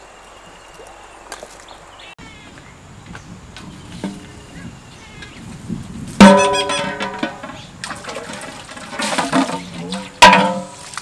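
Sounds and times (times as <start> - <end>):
metal pot clanking and ringing: 6.2 - 10.8.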